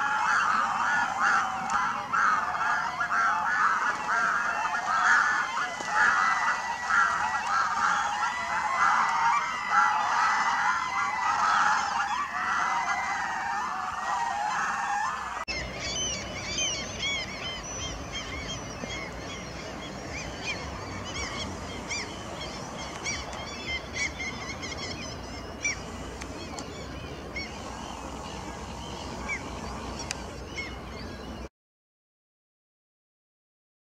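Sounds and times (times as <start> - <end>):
outdoor background noise: 0.0 - 31.5
water birds cackling: 0.0 - 31.5.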